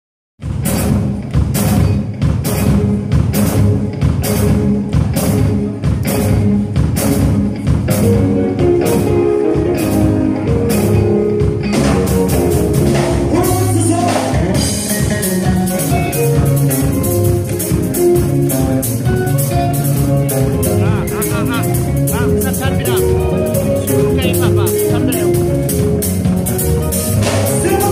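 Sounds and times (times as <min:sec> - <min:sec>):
drum kit beat: 0:00.4 - 0:27.9
live gospel band music: 0:00.4 - 0:27.9.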